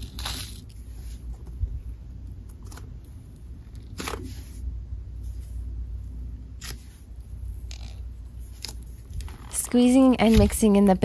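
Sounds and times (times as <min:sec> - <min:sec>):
slime squishing: 0:00.0 - 0:01.4.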